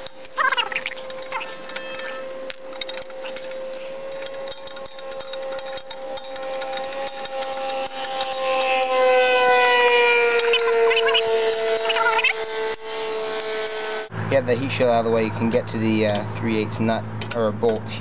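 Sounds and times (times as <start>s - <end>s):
ratchet wrench clicking: 0.0s - 9.0s
steady background tone: 0.0s - 17.0s.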